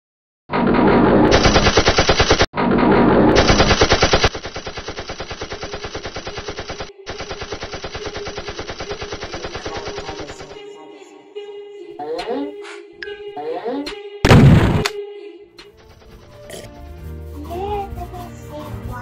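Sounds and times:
machine-gun fire: 1.3s - 2.5s, 3.4s - 10.6s, 14.2s - 15.0s.

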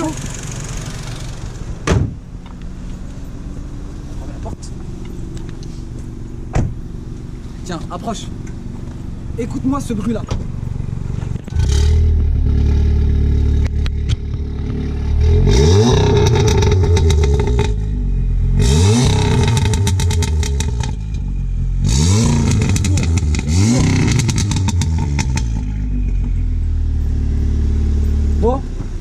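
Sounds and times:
car engine idling and revving: 0.0s - 29.0s
exhaust crackles and pops: 11.1s - 18.0s, 18.6s - 26.6s.

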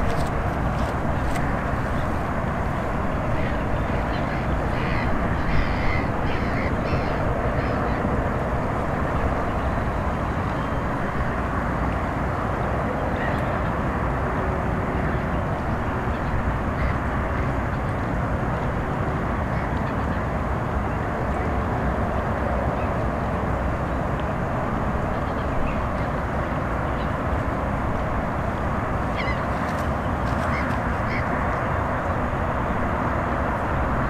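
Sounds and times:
steady rushing noise: 0.0s - 34.0s
bird calling: 29.0s - 31.4s.

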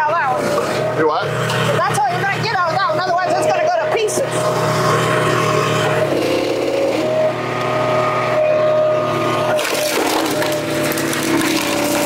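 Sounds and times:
log splitter engine running: 0.0s - 12.0s
wood cracking apart: 9.6s - 12.0s.

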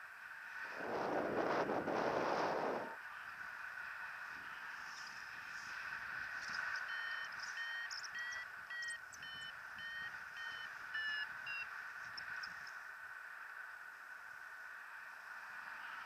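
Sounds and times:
wind rush over microphone: 0.5s - 3.1s
variometer short beeps: 6.8s - 11.7s.

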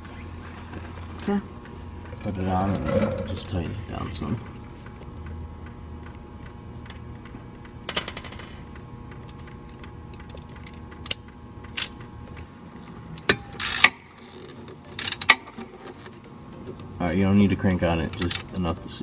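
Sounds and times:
hand ratchet clicking: 5.6s - 19.0s.

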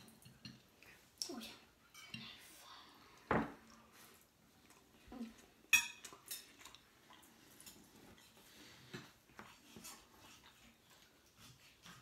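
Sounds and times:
cutlery clinking on plates: 0.0s - 0.7s, 5.7s - 6.7s.

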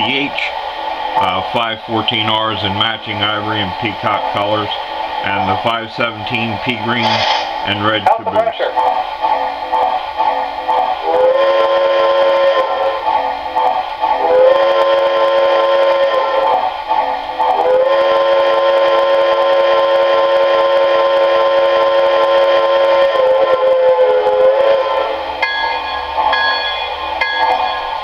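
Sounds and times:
electronic steam whistle blasts: 11.0s - 13.0s, 14.2s - 16.6s, 17.5s - 25.4s.

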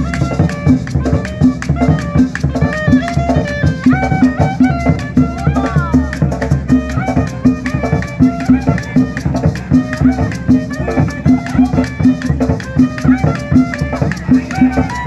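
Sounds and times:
drum beating: 0.0s - 15.0s
quick high melody: 0.0s - 15.0s.

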